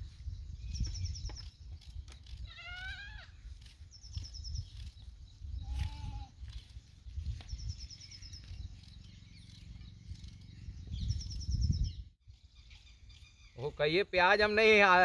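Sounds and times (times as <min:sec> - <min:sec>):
wind rumbling on microphone: 0:00.0 - 0:13.6
animal bleat: 0:02.5 - 0:03.2.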